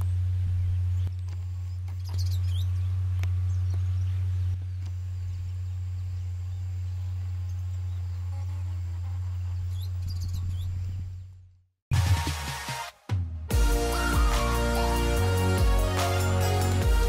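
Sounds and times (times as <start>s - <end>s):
faint bird chirps: 0.0s - 11.4s.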